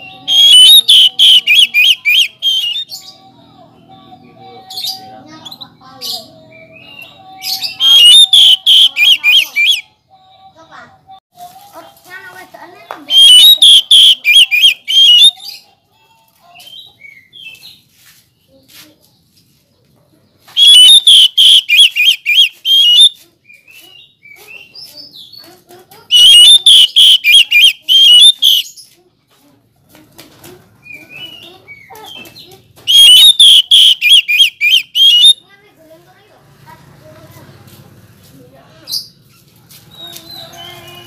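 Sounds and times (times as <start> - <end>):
soft bird chirps: 0.0 - 3.2
bird singing rapid repeated notes: 0.0 - 9.8, 13.1 - 15.6, 20.5 - 25.4, 26.1 - 28.9, 30.9 - 35.4.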